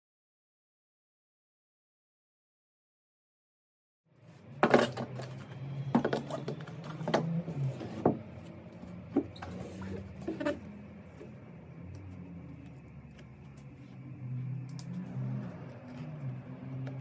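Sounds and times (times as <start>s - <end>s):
steady low hum: 4.2s - 17.0s.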